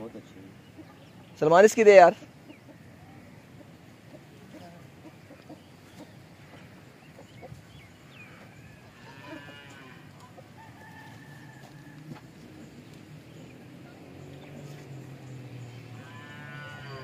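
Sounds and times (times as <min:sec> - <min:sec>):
goat bleating: 0:08.9 - 0:10.1, 0:15.9 - 0:17.0.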